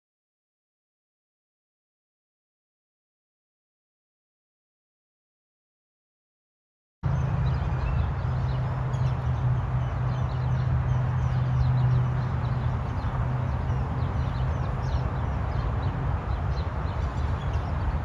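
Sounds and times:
steady low rumble: 7.0 - 18.0
birds chirping: 7.1 - 18.0.

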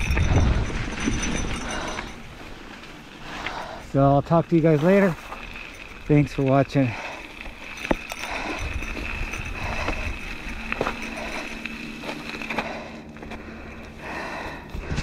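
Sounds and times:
bike rattling over bumps: 0.0 - 15.0
mountain bike riding on dirt: 0.0 - 15.0.

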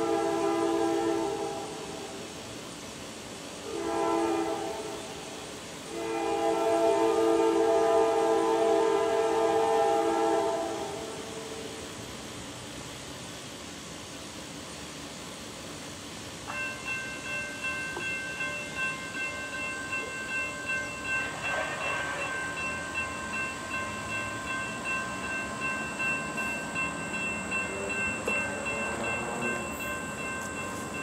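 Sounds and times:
railroad crossing bell dinging: 16.4 - 31.0.

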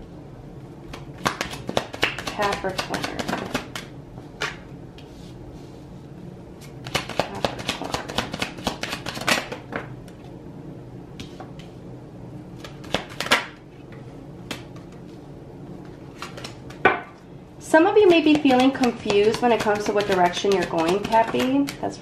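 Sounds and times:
cards being shuffled: 0.9 - 5.1, 6.6 - 9.8, 12.6 - 13.6, 15.8 - 16.8, 18.2 - 21.9.

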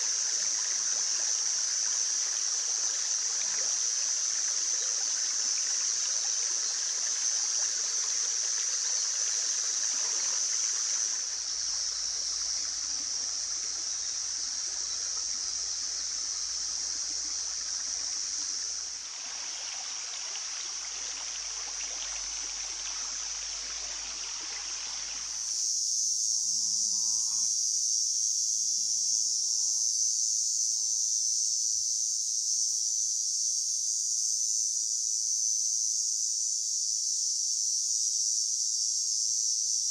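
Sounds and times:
stream babbling over pebbles: 0.0 - 25.7
insect chirring: 0.0 - 39.9.

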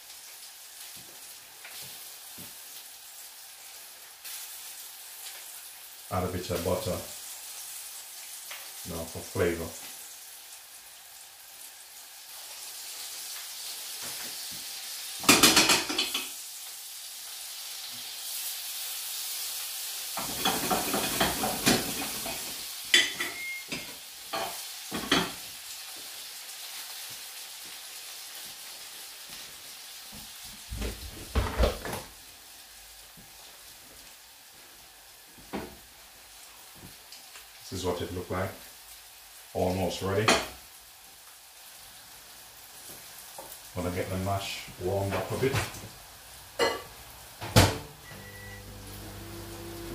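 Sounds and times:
fish sizzling in a frying pan: 0.0 - 49.9.

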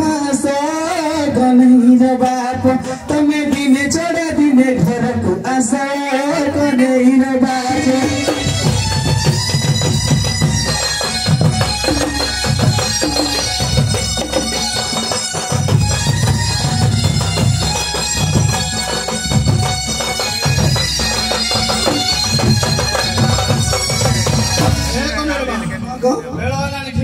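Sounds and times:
drums: 0.0 - 27.0
shrill double-reed pipe: 7.5 - 26.4.

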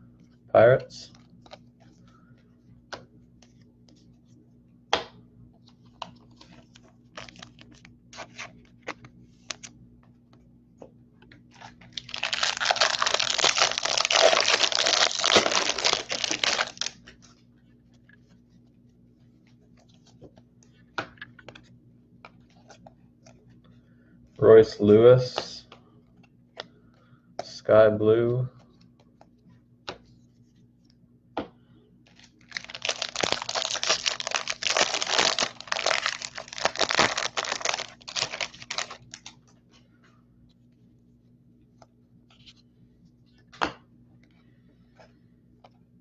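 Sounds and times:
foil wrapper tearing and crinkling: 11.6 - 17.0, 32.2 - 39.3.

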